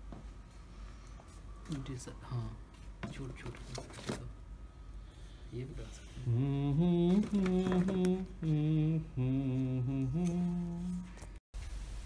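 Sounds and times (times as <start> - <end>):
man singing chant-like tune: 6.0 - 11.4.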